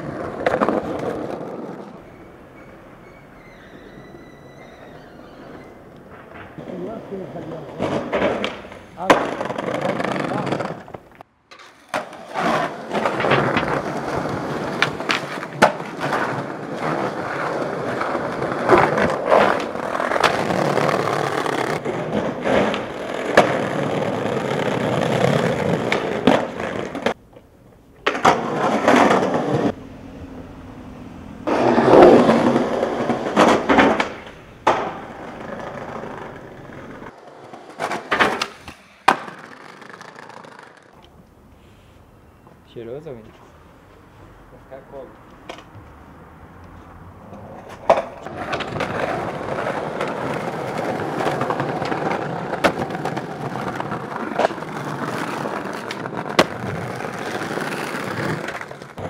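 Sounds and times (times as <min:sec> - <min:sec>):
skateboard clacks: 0:00.0 - 0:02.7, 0:05.4 - 0:29.8, 0:31.4 - 0:41.2, 0:47.2 - 0:59.0
skateboard wheels rolling: 0:00.0 - 0:59.0.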